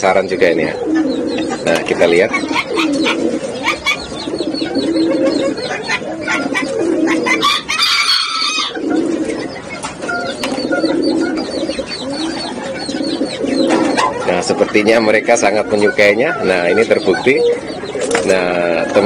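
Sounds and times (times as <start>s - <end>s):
doves cooing: 0.0s - 19.0s
high-pitched bird call: 9.5s - 14.1s.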